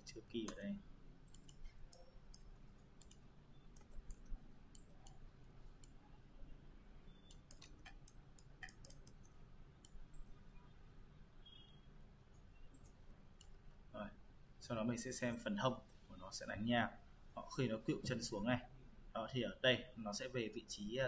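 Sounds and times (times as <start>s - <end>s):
computer mouse clicks: 0.4s - 6.0s, 7.2s - 10.4s, 12.6s - 13.6s.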